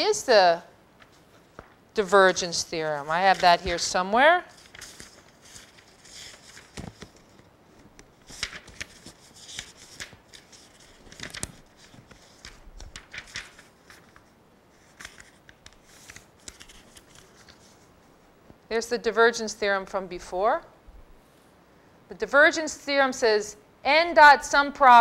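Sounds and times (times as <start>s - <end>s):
paper sheets rustling: 1.0s - 17.9s.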